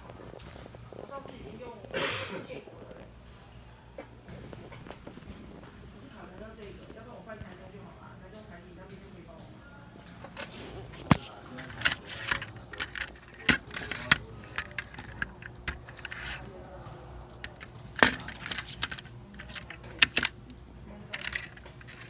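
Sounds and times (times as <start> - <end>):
toy metal parts clicking and rattling: 11.0 - 22.0.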